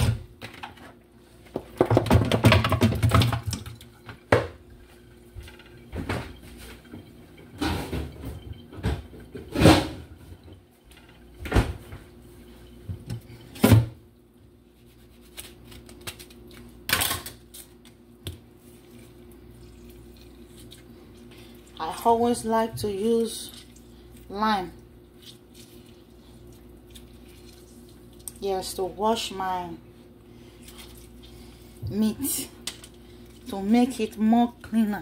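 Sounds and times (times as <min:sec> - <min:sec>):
knocks and clatters of pot and bowl: 0:01.6 - 0:04.6.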